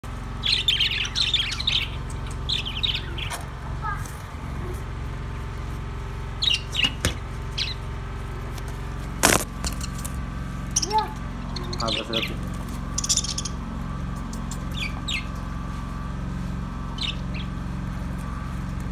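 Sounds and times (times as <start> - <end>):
steady low hum: 0.0 - 18.9
budgerigars chirping: 0.4 - 3.3, 6.4 - 7.8, 10.7 - 13.7, 14.3 - 15.4, 17.0 - 17.6.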